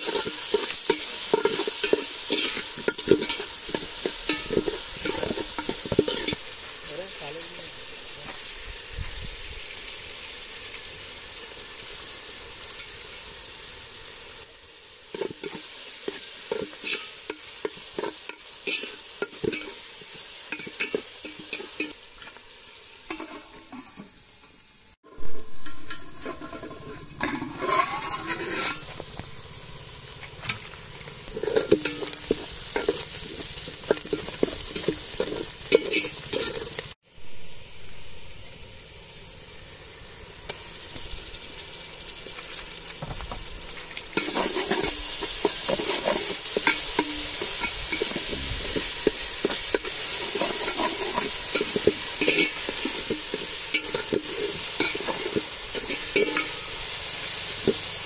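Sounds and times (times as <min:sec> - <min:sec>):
metal ladle scraping pot: 0:00.0 - 0:06.5, 0:15.2 - 0:19.9, 0:23.1 - 0:24.2, 0:25.1 - 0:29.2, 0:31.3 - 0:36.9, 0:44.1 - 0:57.0
onions sizzling in oil: 0:00.0 - 0:58.0.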